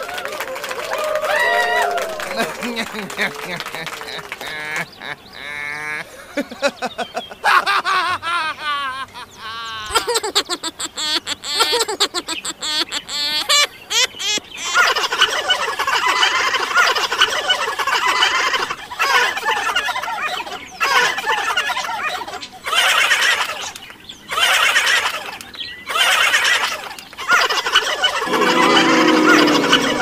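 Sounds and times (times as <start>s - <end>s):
bird calls warbling and chattering: 9.3s - 15.4s.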